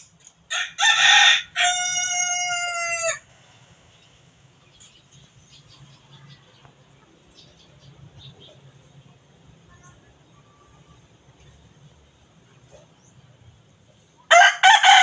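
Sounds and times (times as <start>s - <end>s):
rooster crowing: 0.5s - 3.3s, 14.3s - 15.0s.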